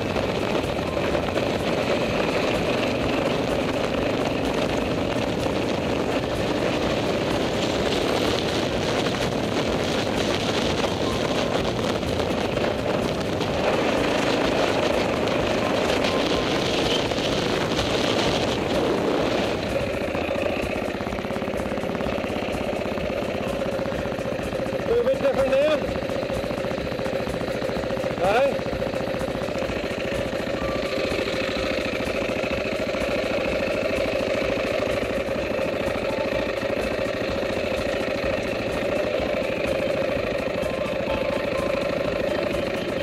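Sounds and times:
wind rushing over microphone: 0:00.0 - 0:25.9
dirt bike engine running: 0:00.0 - 0:43.0.

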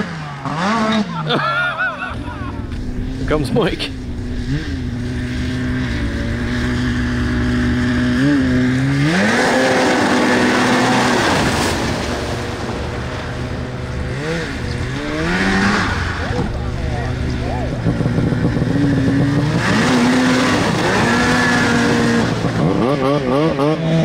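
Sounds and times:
snowmobile engine revving: 0:00.0 - 0:24.0.

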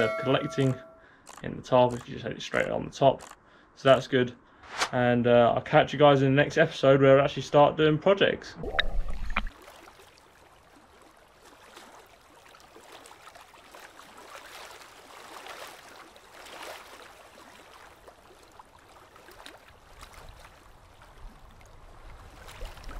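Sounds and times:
sea water lapping and splashing: 0:08.8 - 0:22.9.

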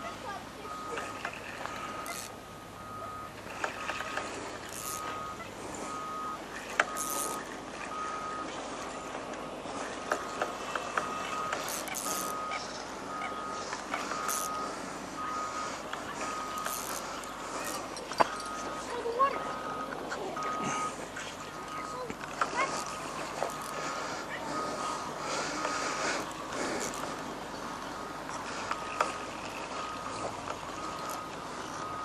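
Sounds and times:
reversing alarm beeping: 0:00.2 - 0:32.0
fishing reel clicking: 0:01.7 - 0:02.4, 0:04.6 - 0:05.2, 0:06.8 - 0:07.5, 0:11.5 - 0:12.6, 0:14.2 - 0:14.6, 0:16.6 - 0:18.6, 0:22.4 - 0:23.8, 0:26.2 - 0:27.0.

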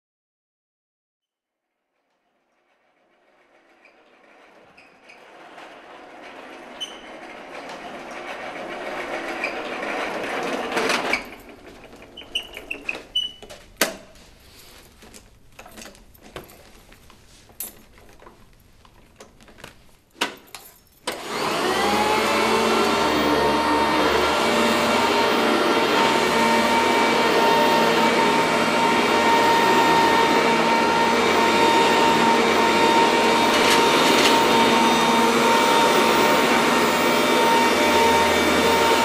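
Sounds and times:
floor-cleaning machine whining hum: 0:02.5 - 0:13.6, 0:21.0 - 0:39.0.

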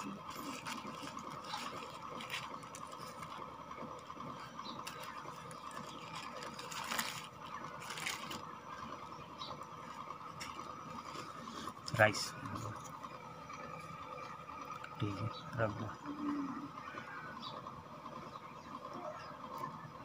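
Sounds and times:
plastic wrapper crinkling: 0:00.0 - 0:04.1, 0:04.8 - 0:08.6
background hum: 0:00.0 - 0:20.0.

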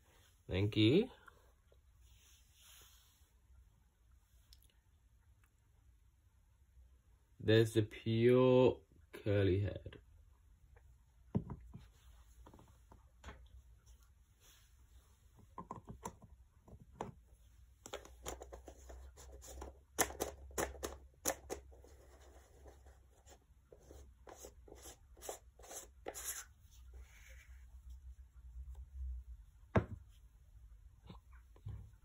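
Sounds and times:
plastic pot and tools handled: 0:17.8 - 0:22.9.

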